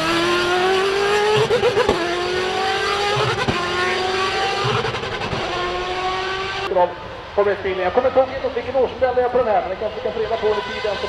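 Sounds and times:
racing car engine accelerating: 0:00.0 - 0:06.7.

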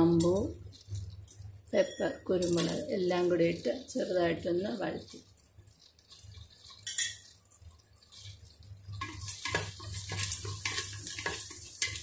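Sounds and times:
spices sizzling in butter: 0:00.0 - 0:12.0
stirring clicks in pot: 0:00.1 - 0:02.8, 0:05.0 - 0:12.0.

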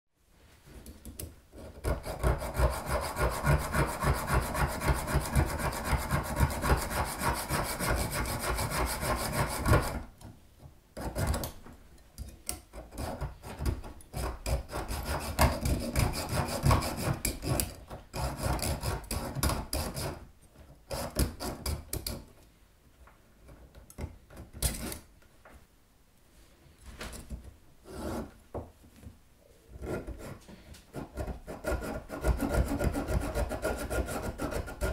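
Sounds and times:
hacksaw cutting metal: 0:01.6 - 0:10.0, 0:12.9 - 0:20.2, 0:31.0 - 0:34.9.

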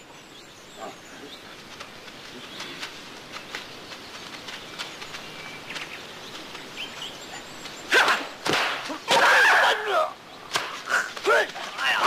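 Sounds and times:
bird chirps: 0:00.0 - 0:08.5
quiet outdoor ambience: 0:00.0 - 0:12.0.

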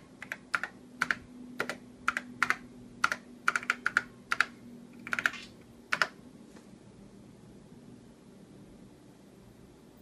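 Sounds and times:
faint steady hum: 0:00.0 - 0:10.0
computer keyboard keystrokes: 0:00.2 - 0:06.2.

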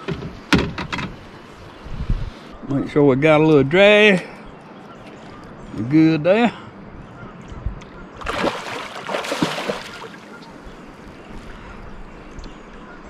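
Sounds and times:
fish thrashing in water: 0:08.2 - 0:10.3.

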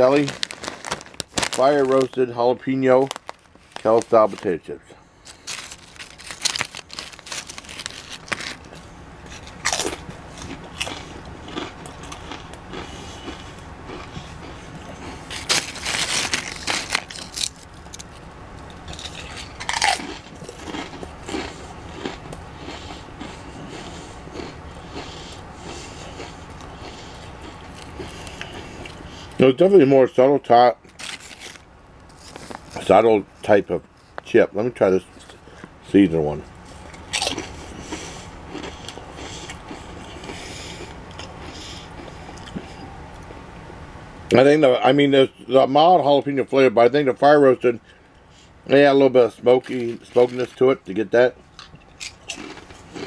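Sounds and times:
potato chips crunching: 0:00.0 - 0:29.0, 0:30.8 - 0:33.0, 0:36.7 - 0:43.2, 0:49.3 - 0:53.0
chewing: 0:05.3 - 0:18.1, 0:18.8 - 0:29.0, 0:36.7 - 0:43.4, 0:51.5 - 0:53.0.

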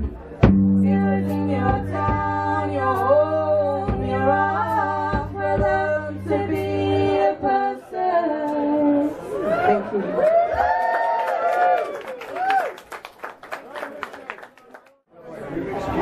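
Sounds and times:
person singing: 0:00.8 - 0:10.0.

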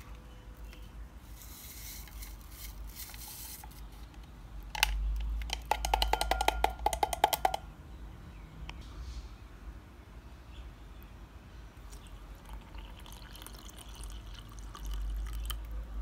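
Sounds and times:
stick tapping ringing glass: 0:05.7 - 0:07.6.

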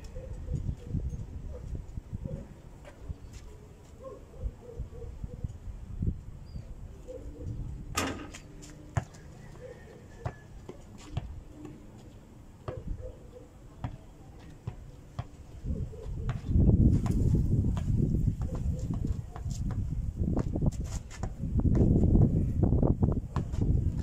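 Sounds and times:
ball bouncing on dirt court: 0:07.9 - 0:13.0, 0:13.8 - 0:15.4, 0:16.0 - 0:22.1, 0:23.3 - 0:24.0
basketball clanging on hoop: 0:08.0 - 0:08.4.

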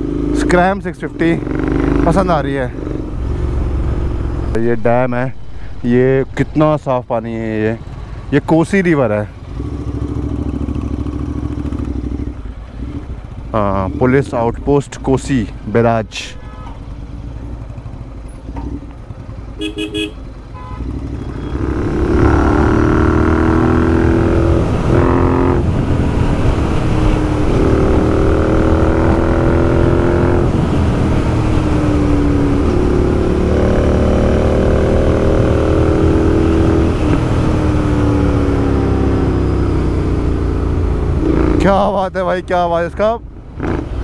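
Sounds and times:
motorcycle accelerating through gears: 0:00.0 - 0:04.6, 0:09.4 - 0:14.4, 0:20.8 - 0:41.8, 0:43.4 - 0:44.0
low wind rumble: 0:00.0 - 0:19.7, 0:21.5 - 0:44.0.

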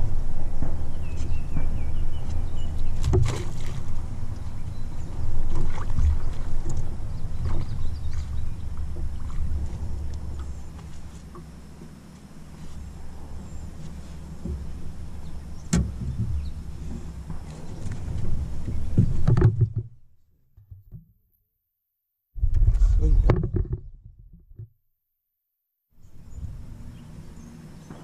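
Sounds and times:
low handling rumble: 0:00.0 - 0:20.0, 0:22.4 - 0:24.5, 0:26.0 - 0:28.0
knocks against metal boat hull: 0:15.7 - 0:16.5.

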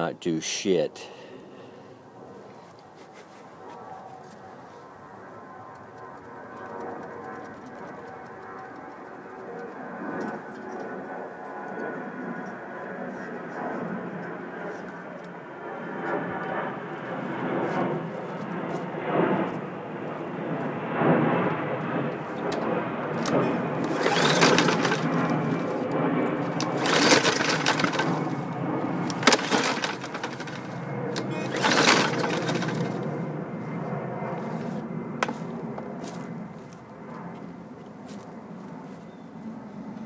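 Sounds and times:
recoil rope rasping: 0:23.2 - 0:33.0
engine cranking without firing: 0:23.2 - 0:33.2.

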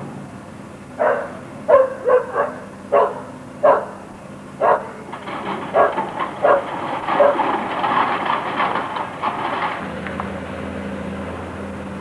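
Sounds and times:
excavator engine humming: 0:00.0 - 0:12.0
dog barking: 0:01.0 - 0:05.1, 0:05.7 - 0:07.5.

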